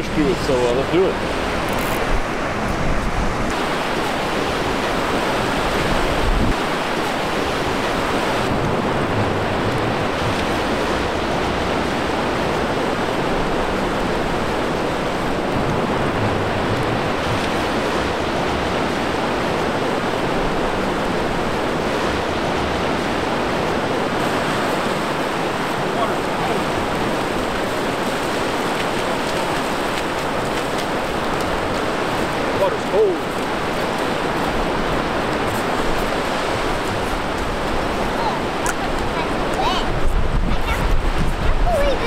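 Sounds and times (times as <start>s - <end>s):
surf breaking on a beach: 0.0s - 42.0s
wind rumbling on the microphone: 0.0s - 42.0s.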